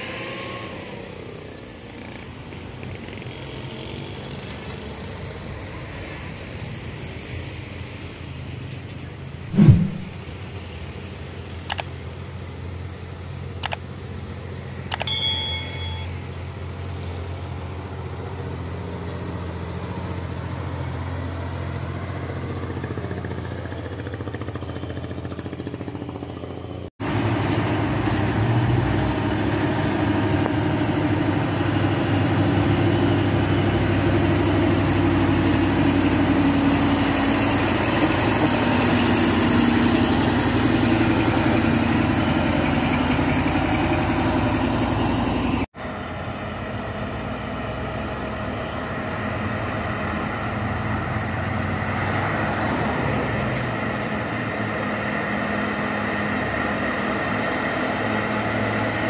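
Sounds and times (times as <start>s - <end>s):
truck diesel engines under load: 0.0s - 9.5s, 10.1s - 59.0s
truck engine approaching: 12.0s - 59.0s.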